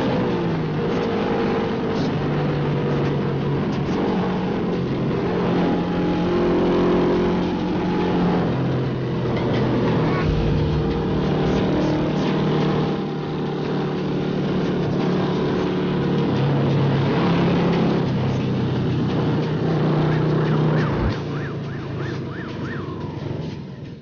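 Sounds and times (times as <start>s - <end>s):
wind and road noise: 0.0s - 24.0s
ambulance siren wailing: 20.0s - 23.5s.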